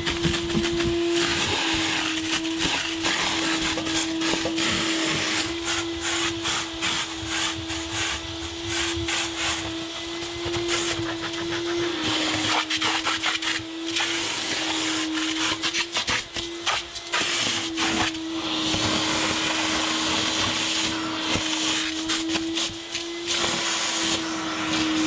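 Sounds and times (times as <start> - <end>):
vacuum cleaner running: 0.0 - 25.0.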